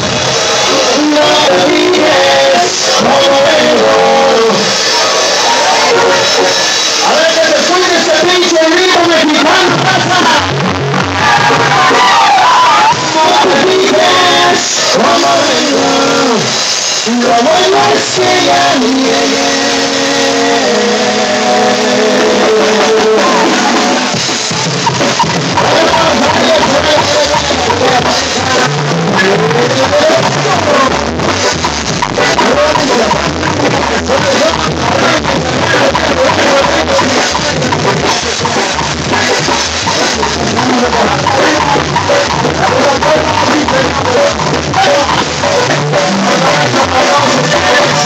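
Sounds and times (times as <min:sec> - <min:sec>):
drum kit: 0:00.0 - 0:48.0
live band music: 0:00.0 - 0:48.0
held keyboard notes: 0:12.7 - 0:48.0.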